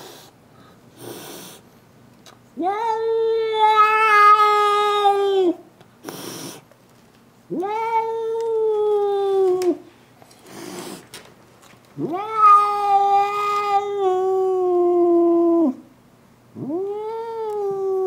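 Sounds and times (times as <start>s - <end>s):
cat hissing: 0.0s - 1.7s, 6.0s - 6.7s, 10.4s - 11.1s
cat howling: 2.6s - 5.6s, 7.5s - 9.8s, 12.0s - 15.8s, 16.6s - 18.0s.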